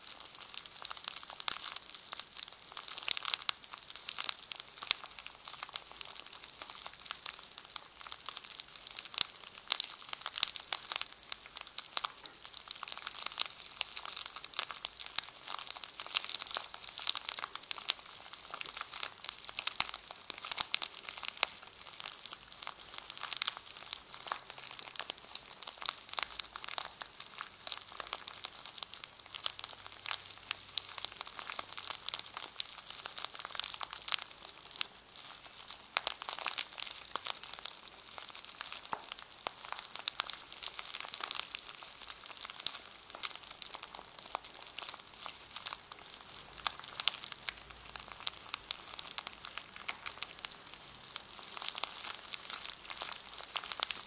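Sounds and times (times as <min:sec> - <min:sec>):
wrapper crinkling: 0:12.0 - 0:54.0.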